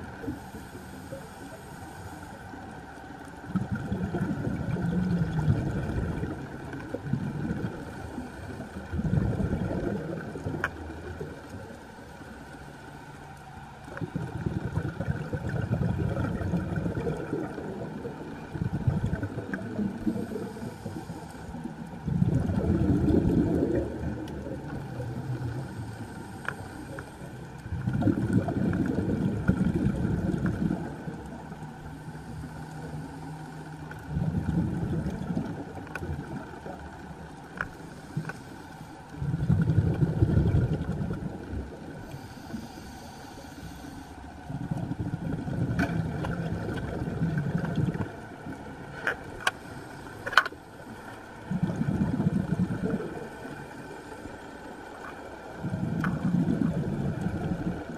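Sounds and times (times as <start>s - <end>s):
faint steady hum: 0.0s - 57.9s
underwater air bubbling: 0.0s - 57.9s
diver breathing: 0.3s - 2.7s, 19.9s - 22.1s, 24.8s - 27.6s, 31.8s - 33.9s, 37.6s - 39.2s, 42.0s - 46.4s, 49.0s - 54.6s
faint clicks: 10.0s - 14.8s, 23.7s - 28.0s, 35.0s - 39.2s, 45.7s - 51.4s.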